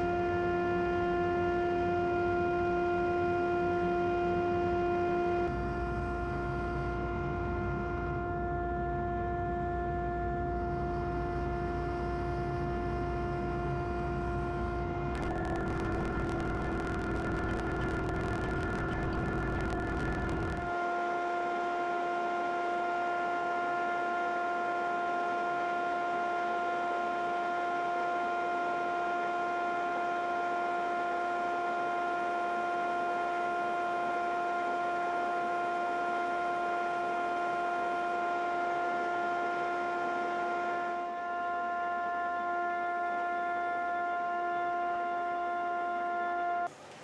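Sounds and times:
disc sander motor whine: 0:04.8 - 0:20.7.

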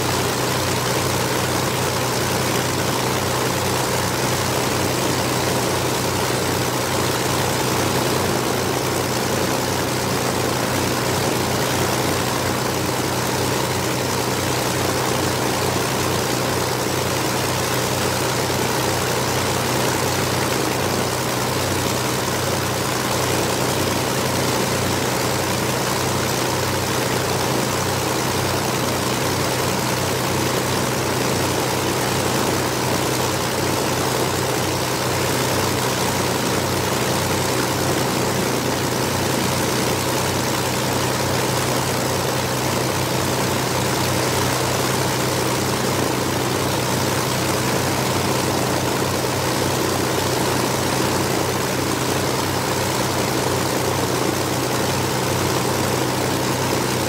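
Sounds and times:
propeller plane engines running: 0:00.0 - 0:57.0.

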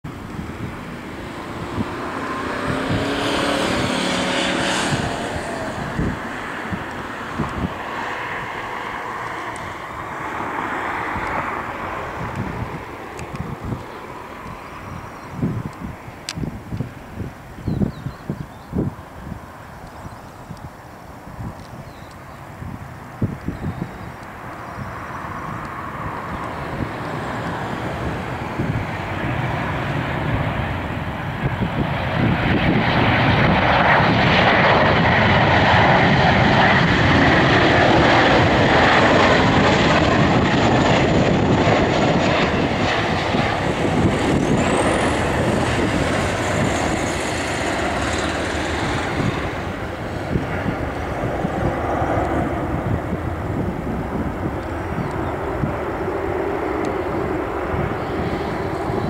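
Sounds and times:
jet engines on approach: 0:00.0 - 0:59.0.

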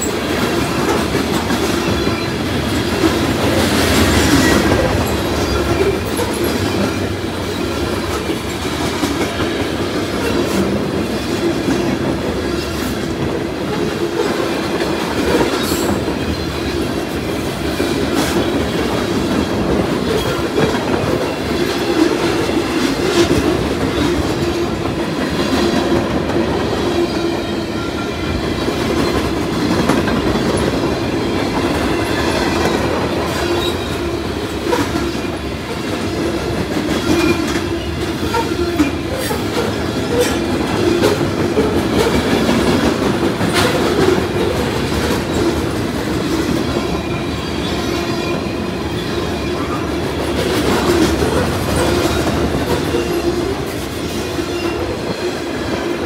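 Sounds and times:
freight train wheels rumbling: 0:00.0 - 0:56.0
wheels clacking over rail joints: 0:00.0 - 0:56.0.

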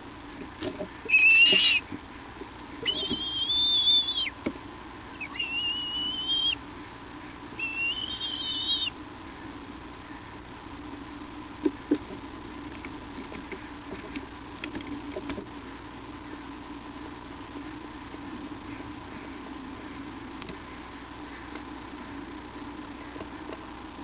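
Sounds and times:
eagle whistled calls: 0:01.1 - 0:01.8, 0:02.8 - 0:04.4, 0:05.1 - 0:06.6, 0:07.6 - 0:09.0.

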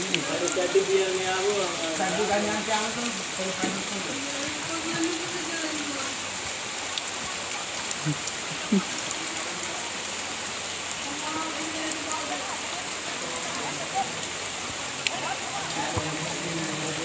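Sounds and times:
boys calling out: 0:00.0 - 0:06.2
steady rain hiss: 0:00.0 - 0:17.0.

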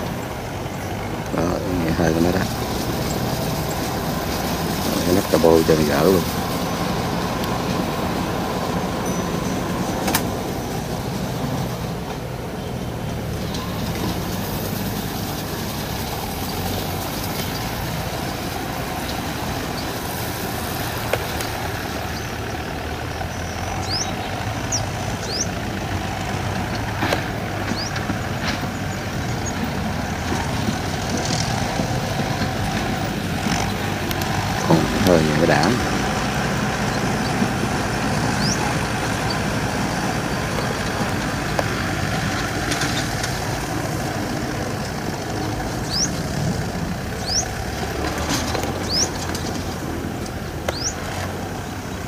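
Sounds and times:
tractor engine under load: 0:00.0 - 0:52.0.

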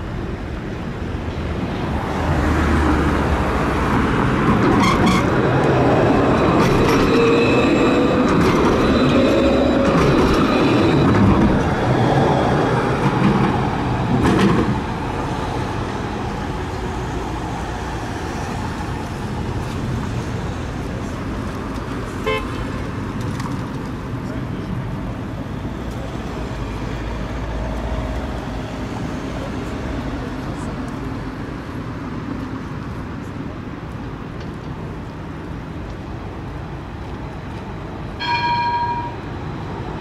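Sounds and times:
street traffic: 0:00.0 - 0:40.0
wheels rumbling on rail: 0:00.0 - 0:40.0
tram motor whine: 0:03.2 - 0:22.3.

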